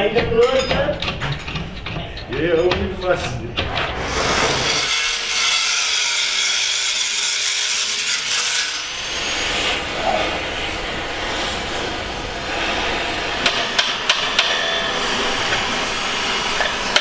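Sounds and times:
gas torch flame hissing: 3.7s - 4.9s, 8.9s - 17.0s.

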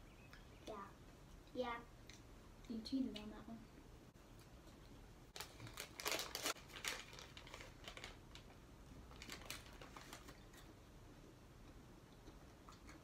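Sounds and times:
plastic wrapper crinkling: 5.4s - 10.7s.

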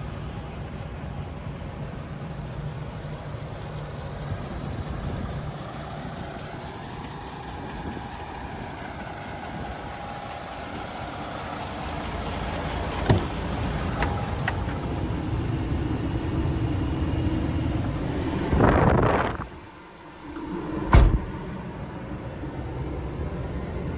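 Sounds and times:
diesel engine idling: 0.0s - 23.9s
cab door clicks: 13.0s - 13.4s.

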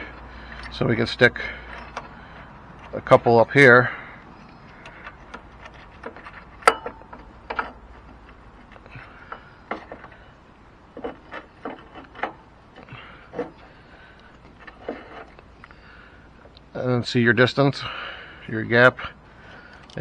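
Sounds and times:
metal clicks and knocks: 1.6s - 3.4s, 4.4s - 10.3s, 10.9s - 13.6s.

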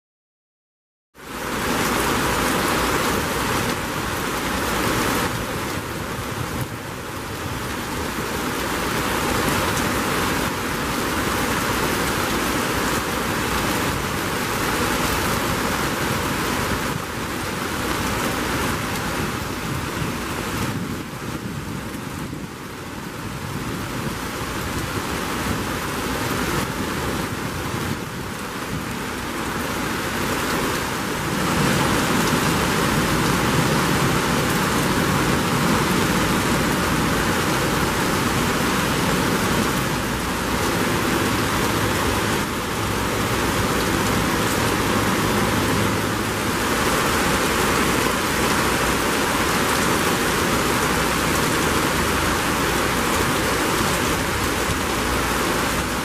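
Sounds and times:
heavy rain pouring: 1.2s - 56.0s.

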